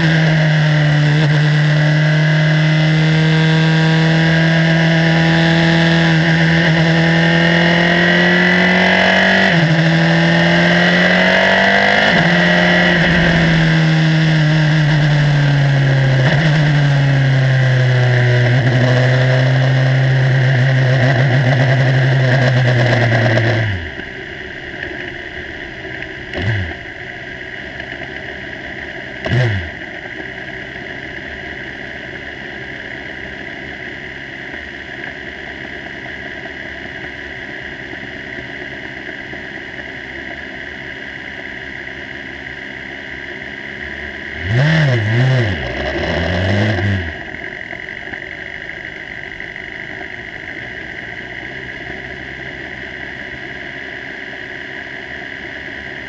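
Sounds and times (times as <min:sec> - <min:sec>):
race car engine revving: 0:00.0 - 0:28.1, 0:28.9 - 0:30.3, 0:44.1 - 0:51.9.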